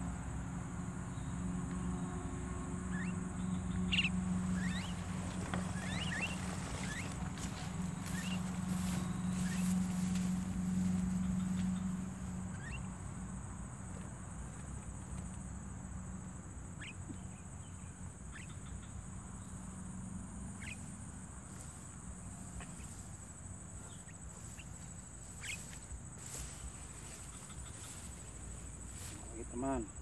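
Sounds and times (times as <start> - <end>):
low hum: 0.0 - 15.0
insects droning: 0.0 - 30.0
myna chirps: 2.9 - 10.0, 11.1 - 12.9, 20.6 - 20.9, 23.8 - 28.3.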